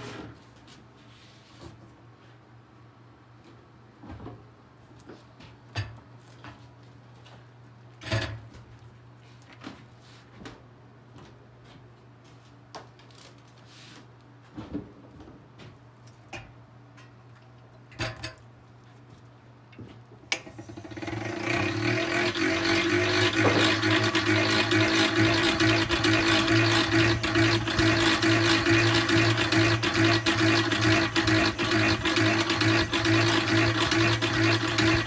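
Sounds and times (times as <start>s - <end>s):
extractor basket whirring: 20.3s - 35.0s.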